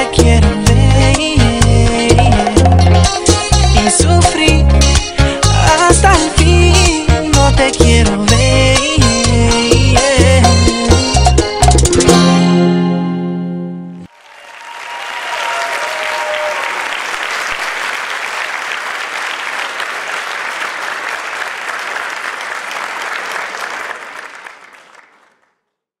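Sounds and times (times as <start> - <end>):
music: 0.0 - 14.1
audience applause: 14.1 - 25.6.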